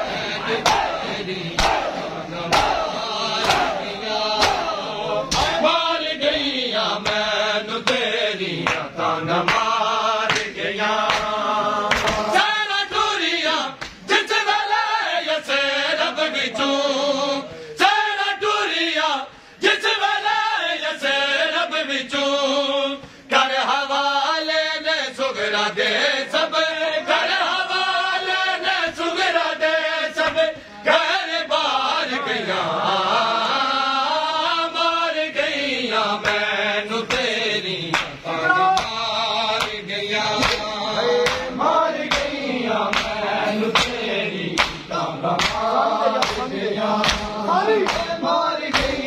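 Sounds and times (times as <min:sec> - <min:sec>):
men chanting in unison: 0:00.0 - 0:49.0
chest-beating slaps: 0:00.6 - 0:05.6, 0:07.0 - 0:08.9, 0:10.3 - 0:12.3, 0:36.2 - 0:36.5, 0:37.1 - 0:49.0.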